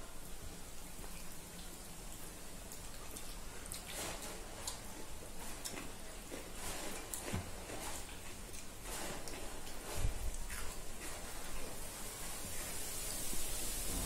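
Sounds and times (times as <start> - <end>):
mouths chewing: 0.8 - 12.8
fingers mixing rice on plates: 2.7 - 12.6.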